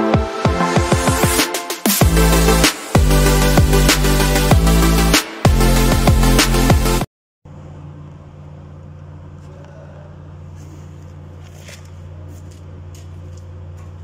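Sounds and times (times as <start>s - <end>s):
electronic intro music: 0.0s - 7.1s
low machine hum: 7.5s - 14.0s.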